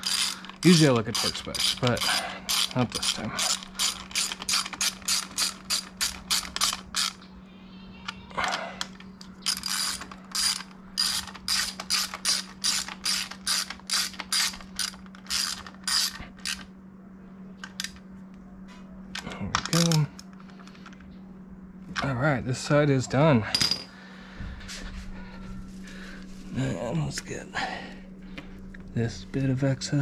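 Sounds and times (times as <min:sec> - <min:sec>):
ratchet wrench clicking: 0:00.0 - 0:07.2, 0:08.8 - 0:16.6.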